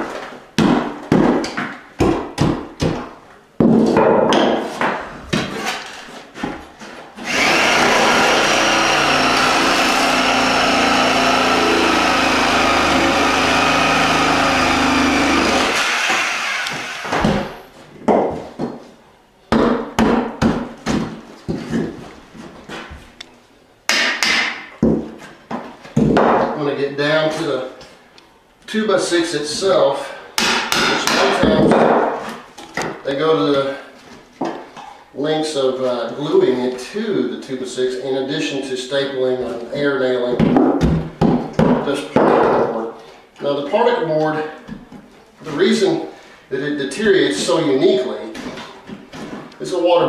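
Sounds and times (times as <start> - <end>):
hand tools knocking and scraping: 0.1 - 18.8, 30.4 - 33.0
reciprocating saw cutting: 7.2 - 17.2.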